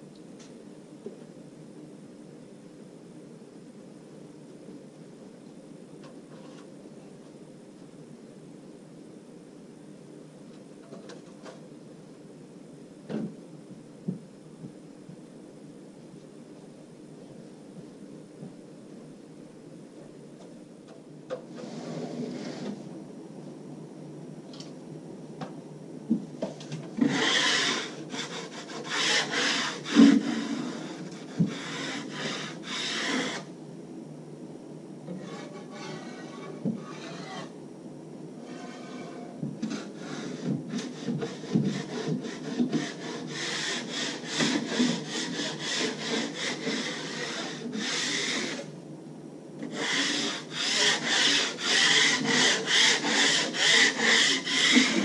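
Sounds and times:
blade scraping joint compound: 26.5 - 33.5, 35.1 - 37.6, 38.4 - 48.7, 49.6 - 55.0.

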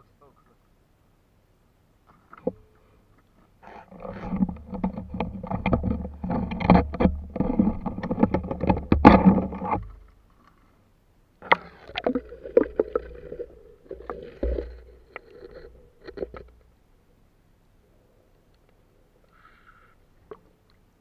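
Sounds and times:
water splashing and sloshing: 11.4 - 16.7.

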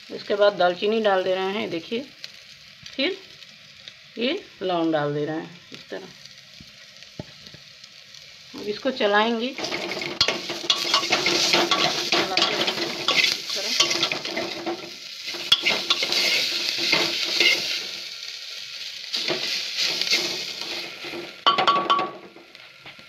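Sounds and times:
frying sizzle: 0.0 - 23.0
metal ladle scraping pot: 9.6 - 17.7.

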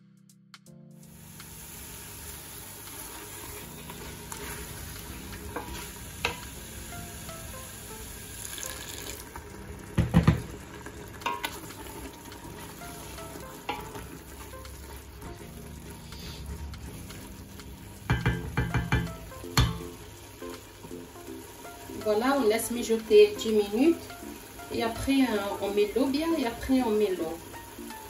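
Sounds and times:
sauce sizzling in a pot: 1.0 - 28.0
wooden spoon knocking on pot: 10.0 - 10.6, 18.1 - 20.0.

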